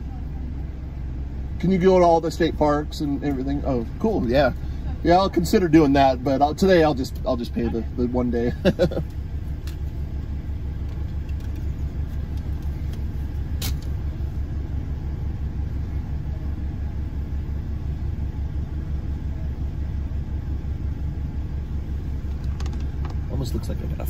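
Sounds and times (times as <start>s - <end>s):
truck engine idling: 0.0s - 24.0s
sharp click: 13.6s - 14.0s.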